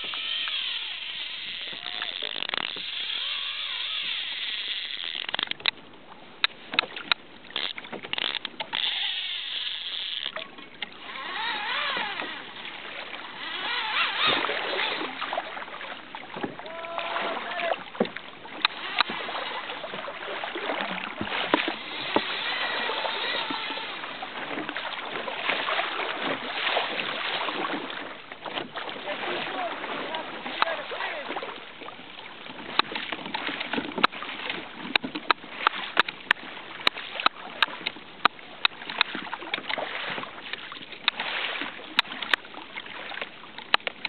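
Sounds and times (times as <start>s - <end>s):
water splashing against kayak hull: 0.0s - 44.0s
sharp clicks: 4.9s - 5.8s.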